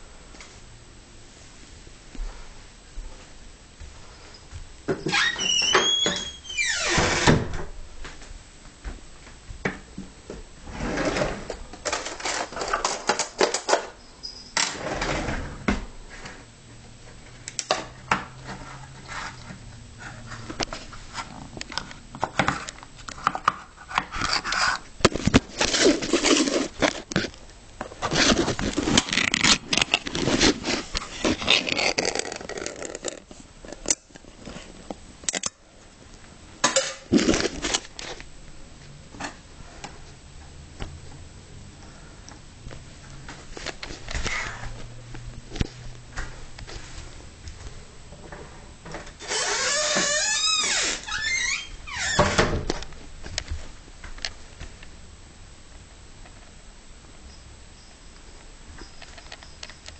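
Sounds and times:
rustling: 18.4s - 35.0s.

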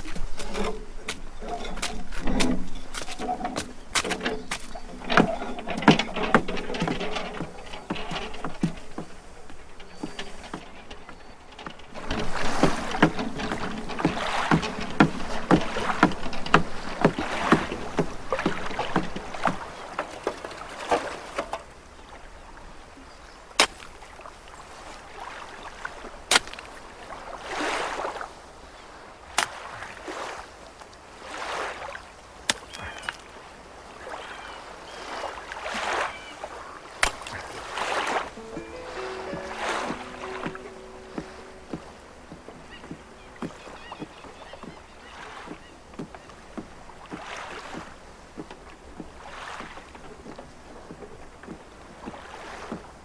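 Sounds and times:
crunching on loose stones: 0.0s - 21.3s
water lapping: 0.0s - 53.0s
sharp knocks: 0.5s - 21.1s, 38.4s - 44.8s.

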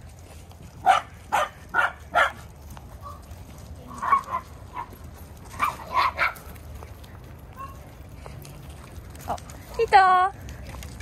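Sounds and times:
dogs barking: 0.8s - 3.2s, 3.9s - 6.6s.

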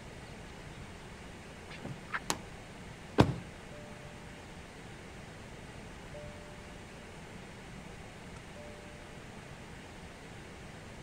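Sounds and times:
car door slamming shut: 3.2s - 3.5s.

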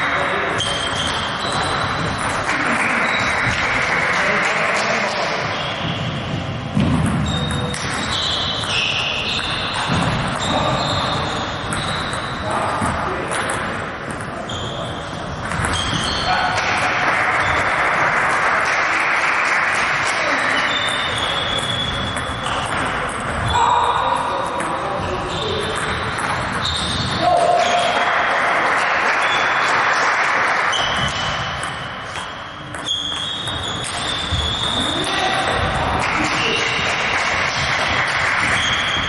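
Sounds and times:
short high squeaks: 0.6s - 2.3s, 7.2s - 12.5s, 14.5s - 16.5s, 20.4s - 22.7s, 26.5s - 28.0s, 30.7s - 35.4s
ping-pong balls clicking: 0.6s - 5.6s, 6.8s - 23.5s, 24.1s - 39.0s.

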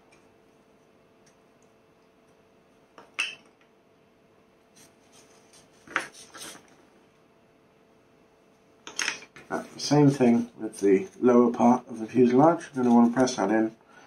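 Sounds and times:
faint steady hum: 0.0s - 14.0s
handling small parts and tools: 8.8s - 9.4s.

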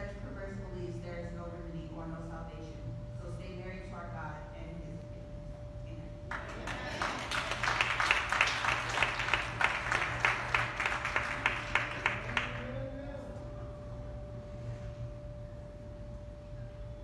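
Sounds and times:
audience applauding: 6.3s - 12.8s.

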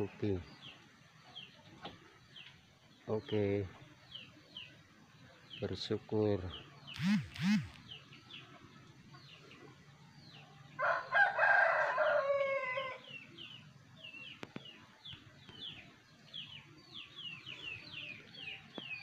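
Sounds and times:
small birds chirping: 0.0s - 19.0s
rooster crowing: 10.8s - 13.1s.

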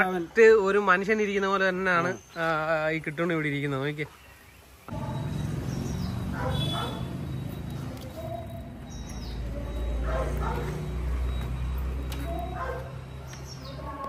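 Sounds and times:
dog yipping and whining: 6.3s - 7.1s, 9.8s - 10.9s, 12.2s - 13.0s.

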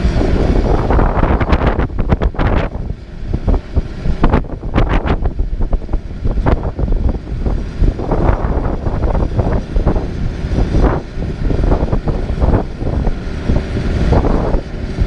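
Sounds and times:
diesel engine rumble: 0.0s - 15.0s
irregular rushing noise: 0.0s - 15.0s.

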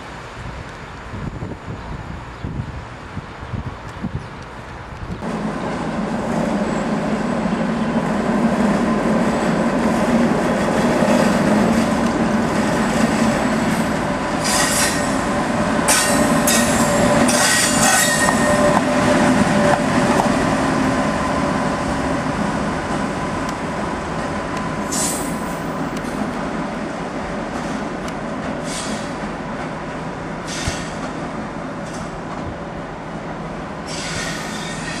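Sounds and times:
electric locomotive hum: 0.0s - 35.0s
high wheel squeals: 33.9s - 35.0s.

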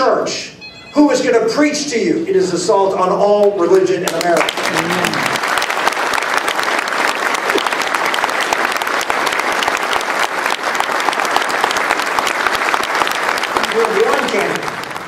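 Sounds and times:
crowd applauding: 4.0s - 15.0s.

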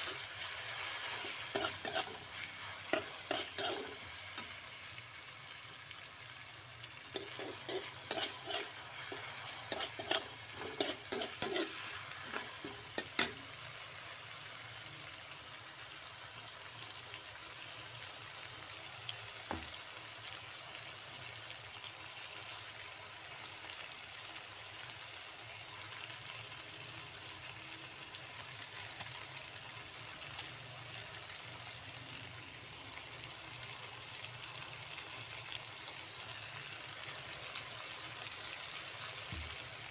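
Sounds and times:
metal spatula scraping a wok: 0.0s - 4.6s, 7.1s - 13.4s
food sizzling in a wok: 0.0s - 39.9s.

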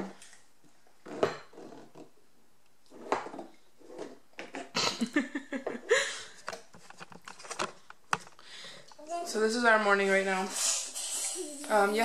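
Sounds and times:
slurping through straws: 10.0s - 12.0s
baby vocal sounds: 10.5s - 12.0s.

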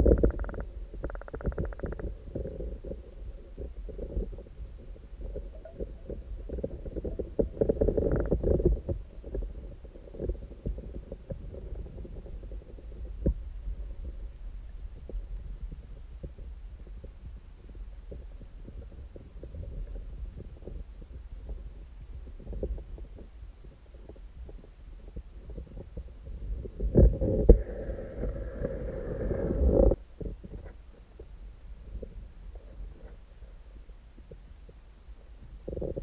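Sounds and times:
muffled underwater rumble: 0.0s - 36.0s.

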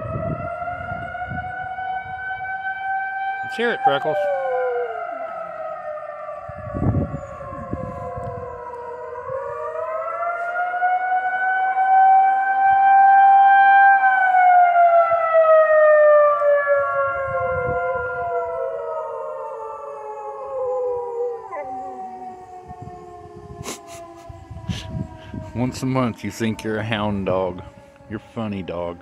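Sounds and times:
warning siren wailing: 0.0s - 29.0s
dog howling: 3.8s - 5.6s, 19.4s - 23.1s.

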